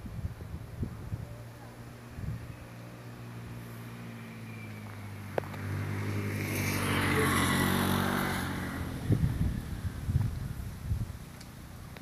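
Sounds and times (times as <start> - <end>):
vehicle engine passing: 1.6 - 10.7.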